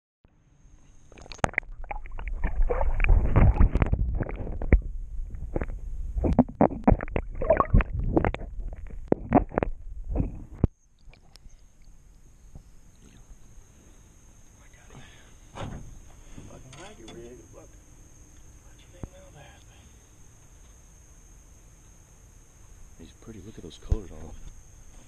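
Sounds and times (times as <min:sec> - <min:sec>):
muffled underwater splashing: 0:01.1 - 0:11.8.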